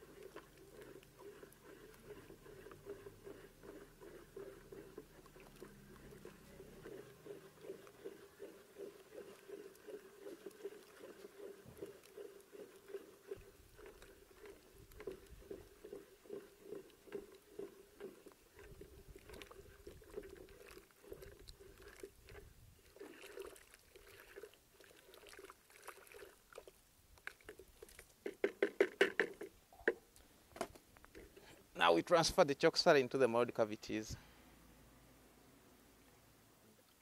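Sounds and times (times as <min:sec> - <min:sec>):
stick stirring slurry in bucket: 0:00.0 - 0:29.6.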